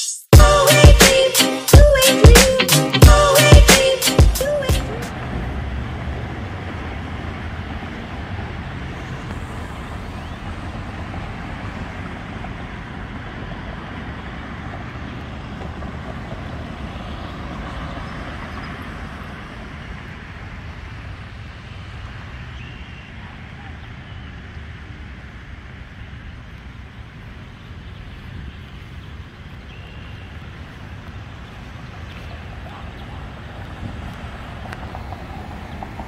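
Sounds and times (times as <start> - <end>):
intro music: 0.0 - 5.1
road traffic noise: 0.3 - 36.0.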